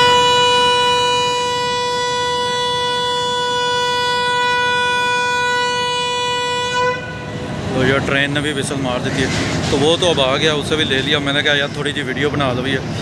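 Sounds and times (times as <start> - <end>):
train horn blast: 0.0 - 7.8.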